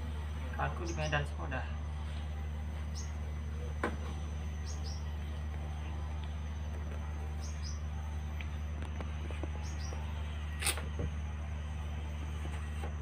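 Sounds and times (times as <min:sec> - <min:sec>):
steady low hum: 0:00.0 - 0:13.0
high insect tone: 0:02.8 - 0:07.9
bird chirping: 0:04.5 - 0:05.2, 0:07.2 - 0:08.0, 0:09.4 - 0:10.2.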